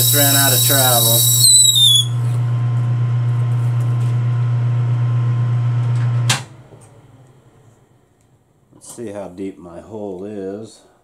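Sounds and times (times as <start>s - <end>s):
lathe motor hum: 0.0s - 1.6s
drill squealing in plastic: 0.0s - 2.2s.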